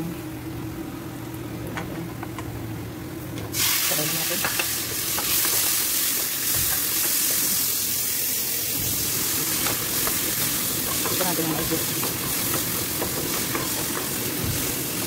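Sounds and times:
vegetables sizzling in frying pan: 3.5s - 15.0s.

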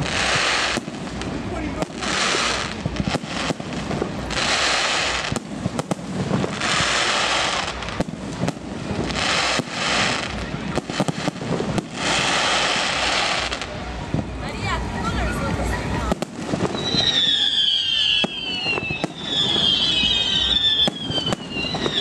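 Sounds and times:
firework hissing: 0.0s - 22.0s
firework shells bursting: 16.1s - 22.0s.

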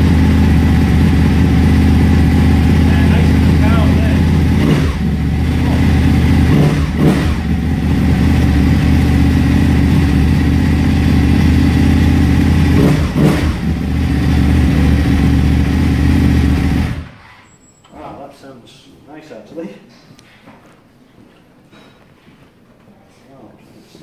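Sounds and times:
motorcycle engine idling: 0.0s - 17.1s.

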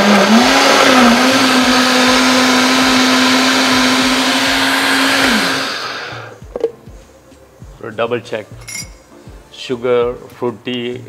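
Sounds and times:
blender motor running: 0.0s - 6.4s.

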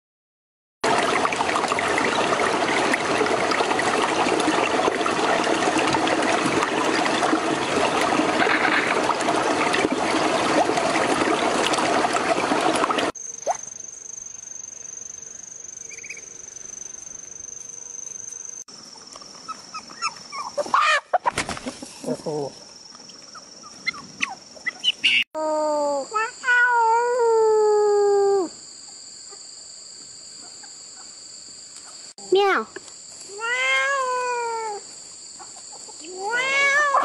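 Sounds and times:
water running and trickling: 0.8s - 13.6s.

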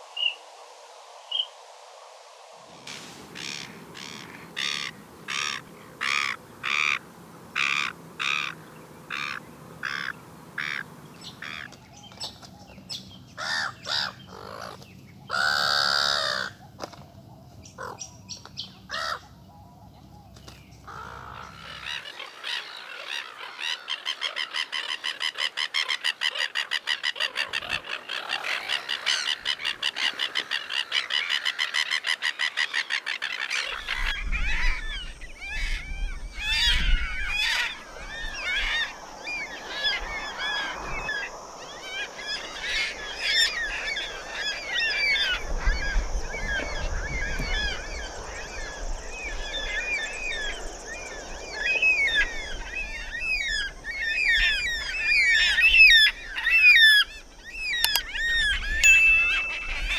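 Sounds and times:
gulls calling: 2.8s - 12.3s, 20.9s - 59.9s.

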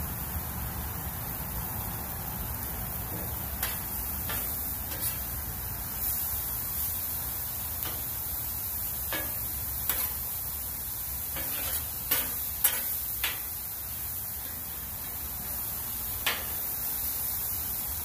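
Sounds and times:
vegetables sizzling: 0.0s - 18.0s
metal spatula scraping griddle: 3.6s - 6.4s, 9.0s - 10.4s, 11.2s - 13.6s.

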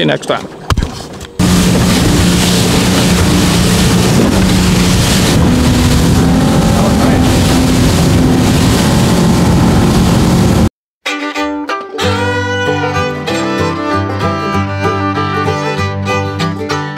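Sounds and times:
wind buffeting microphone: 1.3s - 10.7s
motorboat engine running: 1.4s - 10.7s
water rushing past hull: 1.4s - 10.7s.

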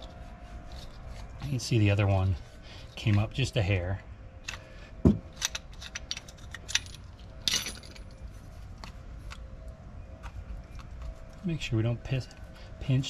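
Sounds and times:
metal tool clicks and clinks: 5.3s - 8.2s.

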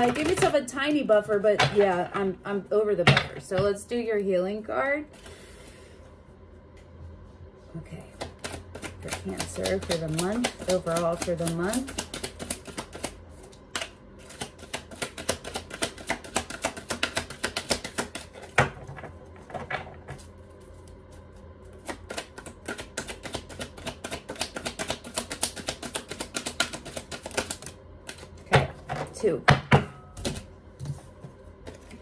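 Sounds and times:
cards being shuffled: 8.1s - 18.5s, 20.1s - 28.4s, 31.6s - 32.0s.

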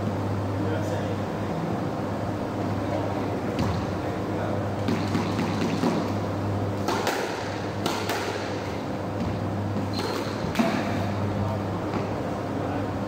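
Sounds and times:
steady low hum: 0.0s - 13.0s
squash ball hitting rackets and walls: 3.5s - 4.0s, 4.8s - 11.3s
shoe squeak on wooden floor: 9.8s - 10.5s.

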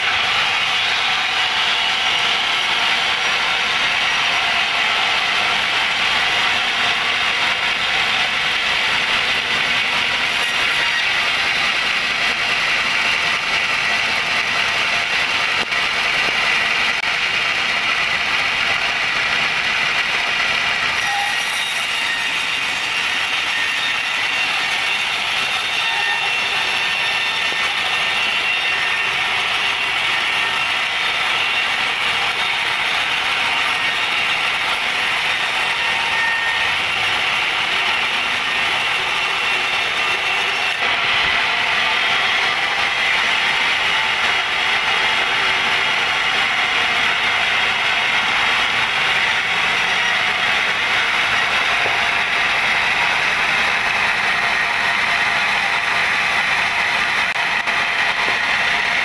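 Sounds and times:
band saw cutting log: 0.0s - 59.0s.

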